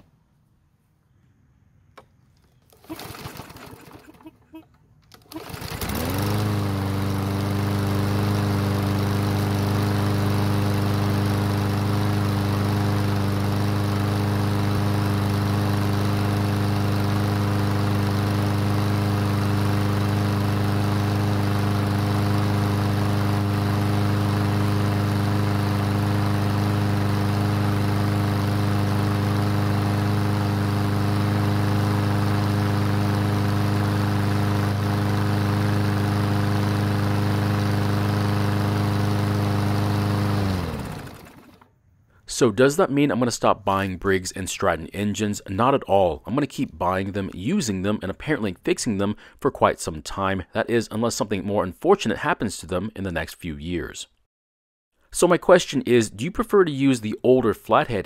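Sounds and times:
lawn mower engine running: 0:02.0 - 0:41.8.

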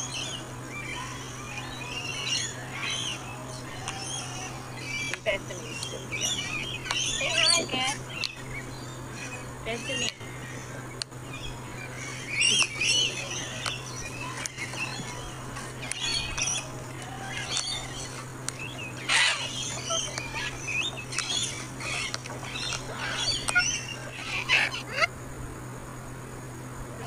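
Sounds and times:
cockatoos chirping and squawking: 0:00.0 - 0:25.1
steady low hum: 0:00.0 - 0:27.0.

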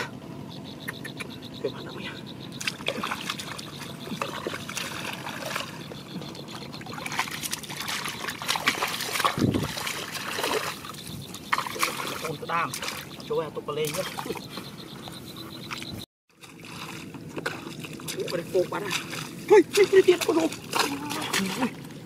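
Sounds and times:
hands splashing in muddy water: 0:02.6 - 0:13.2, 0:16.4 - 0:21.8.

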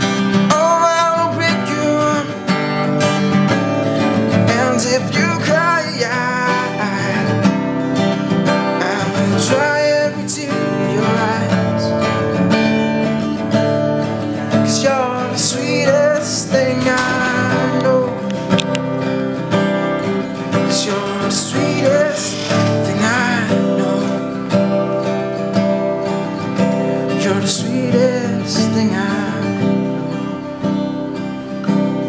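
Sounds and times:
acoustic guitar strumming: 0:00.0 - 0:32.0
man singing wordless runs: 0:00.5 - 0:02.4, 0:04.4 - 0:07.5, 0:08.8 - 0:12.1, 0:14.5 - 0:18.4, 0:20.5 - 0:24.5.

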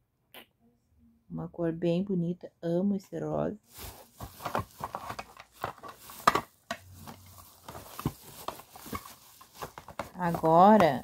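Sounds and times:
packaging rustling: 0:03.6 - 0:11.0.

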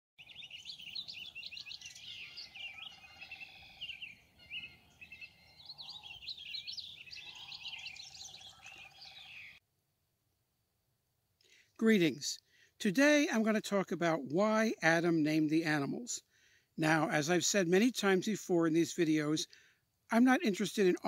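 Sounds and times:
low steady bird trill: 0:00.2 - 0:09.6
songbirds chirping and singing: 0:00.2 - 0:09.6, 0:11.8 - 0:21.0.

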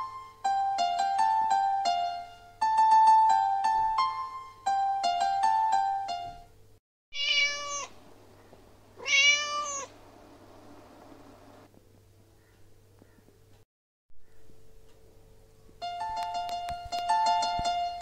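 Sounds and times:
bright piano melody: 0:00.0 - 0:06.7, 0:15.7 - 0:18.0
cat meowing: 0:07.1 - 0:08.0, 0:09.0 - 0:10.0.

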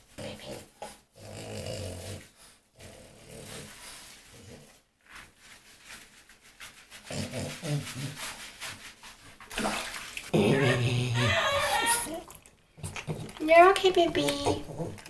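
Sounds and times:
brush scrubbing wet fur: 0:02.0 - 0:12.2.

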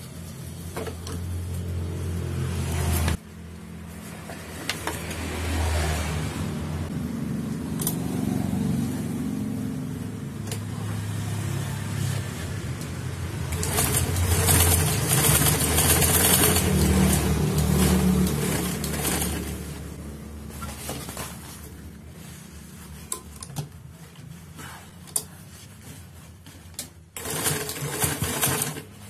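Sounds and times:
sewing machine stitching: 0:13.5 - 0:19.8, 0:27.2 - 0:29.0.

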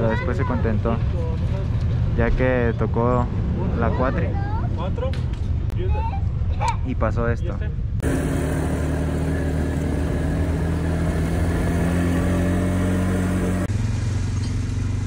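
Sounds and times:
quad bike engine running: 0:08.0 - 0:15.0.

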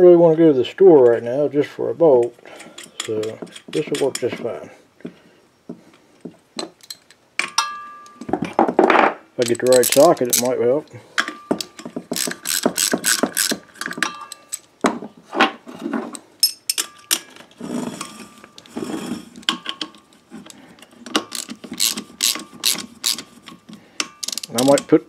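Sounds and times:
socket ratchet clicking: 0:11.6 - 0:14.7, 0:21.1 - 0:23.4, 0:24.0 - 0:24.8
metallic tool clinks: 0:14.0 - 0:14.7.

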